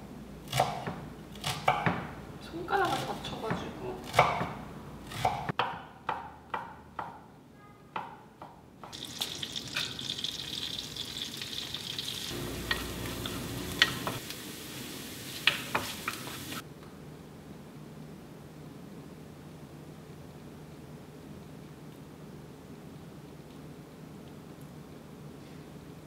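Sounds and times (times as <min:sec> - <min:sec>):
food sizzling in a pan: 0:08.9 - 0:16.6.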